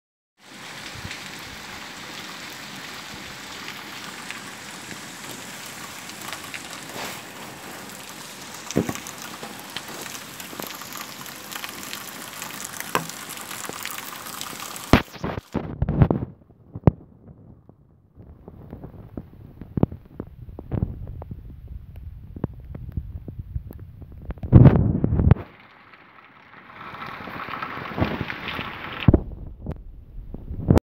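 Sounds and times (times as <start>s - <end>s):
heavy rain on pavement: 0.4s - 17.5s, 18.2s - 29.9s
loud sharp knocks: 8.7s - 9.0s.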